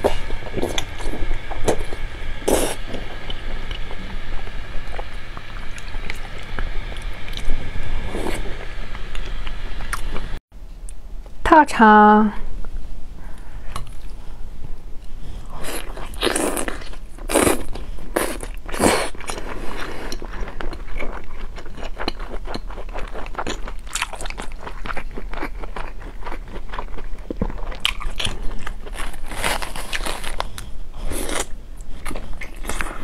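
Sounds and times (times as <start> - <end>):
close-miked biting and chewing: 15.6 - 33.0.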